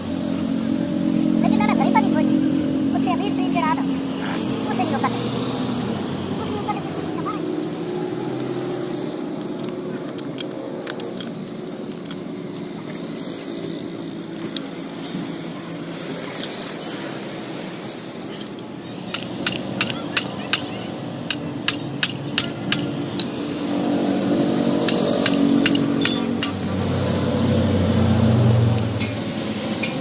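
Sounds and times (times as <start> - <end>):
engine rumble: 0.0 - 30.0
street noise: 0.0 - 30.0
hammer tapping steel punch: 21.3 - 23.3, 24.8 - 26.6.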